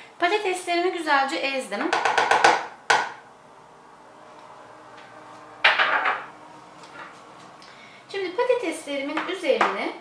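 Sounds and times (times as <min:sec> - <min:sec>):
metal masher knocking wooden bowl: 0:01.9 - 0:03.1.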